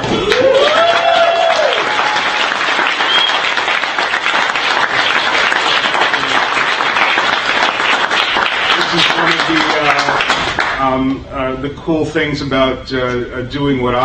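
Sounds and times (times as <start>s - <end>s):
person cheering: 0.0s - 3.3s
audience applauding: 0.0s - 10.8s.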